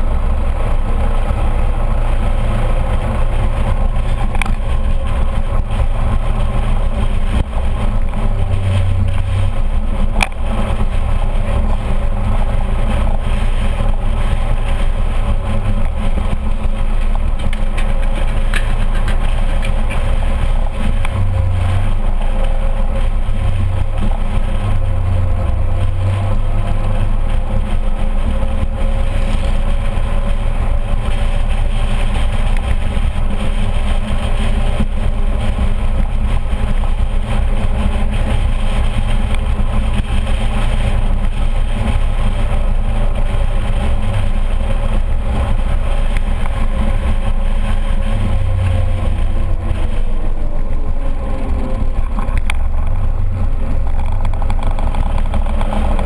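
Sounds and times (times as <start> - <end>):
scooter engine running: 0.0 - 56.0
wind and road noise rumble: 0.0 - 56.0.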